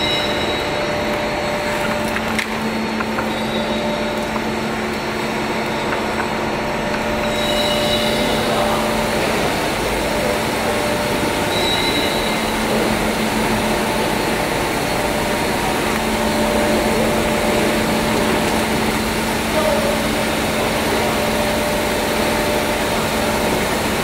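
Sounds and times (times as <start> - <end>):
machine whirring: 0.0 - 24.0.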